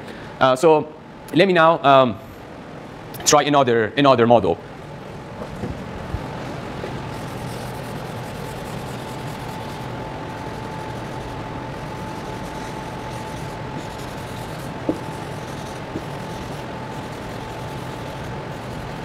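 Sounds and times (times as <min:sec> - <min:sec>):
eraser rubbing on chalkboard: 0:07.1 - 0:19.0.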